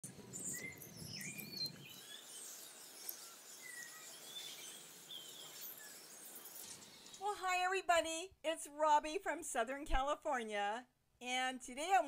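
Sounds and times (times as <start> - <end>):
small birds chirping: 0.0 - 7.3.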